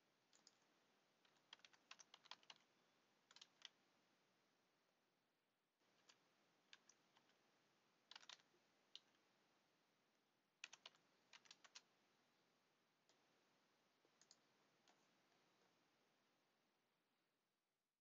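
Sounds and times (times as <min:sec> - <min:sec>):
keyboard and mouse clicking: 0:00.3 - 0:02.7, 0:03.3 - 0:03.8, 0:06.0 - 0:07.4, 0:08.1 - 0:09.2, 0:10.6 - 0:11.9, 0:14.1 - 0:15.1.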